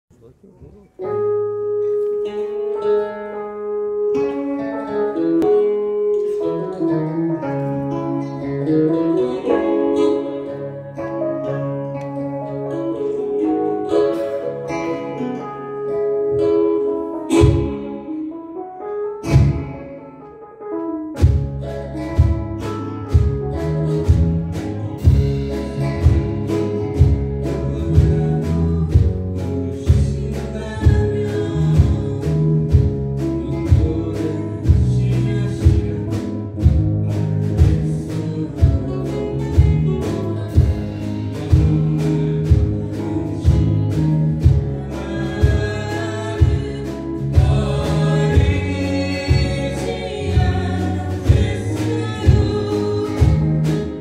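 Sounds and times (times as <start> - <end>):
acoustic guitars: 0.2 - 54.0
drum kit beat: 17.3 - 18.0, 19.2 - 19.9, 21.1 - 54.0
woman singing into a microphone: 37.6 - 54.0.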